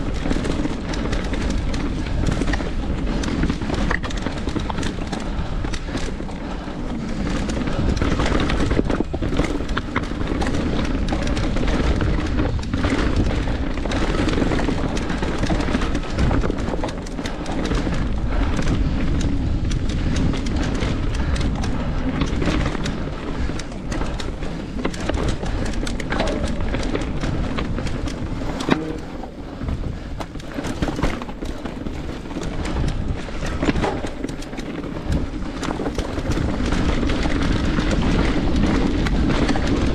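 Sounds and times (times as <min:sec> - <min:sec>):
bike knocking and rattling: 0:00.0 - 0:39.9
wind buffeting microphone: 0:00.0 - 0:39.9.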